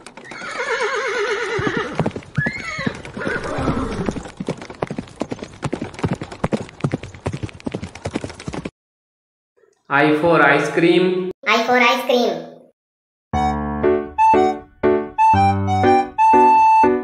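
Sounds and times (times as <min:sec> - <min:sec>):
galloping hoofbeats: 0:00.0 - 0:08.7
horse whinnying: 0:00.2 - 0:04.3.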